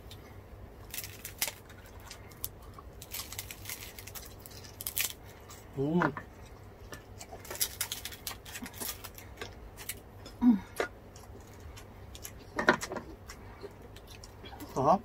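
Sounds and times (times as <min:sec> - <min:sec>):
crispy skin crunching: 0:00.8 - 0:05.7, 0:06.3 - 0:10.4
person humming mm: 0:10.3 - 0:10.8.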